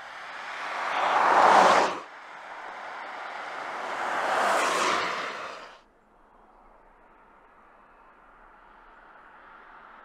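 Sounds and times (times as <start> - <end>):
car passing on a wet road: 0.0 - 5.8.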